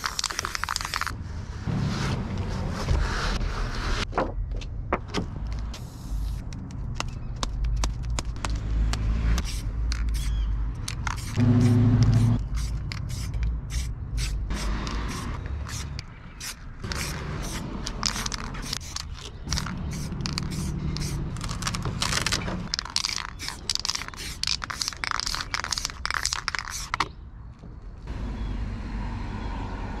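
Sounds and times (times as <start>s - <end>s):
paper scraping and rustling: 16.8s - 27.0s.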